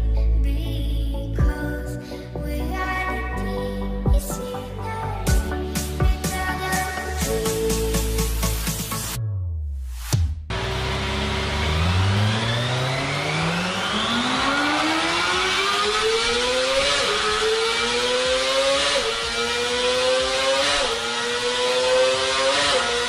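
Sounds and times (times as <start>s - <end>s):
motorcycle engine revving hard: 10.5s - 23.0s.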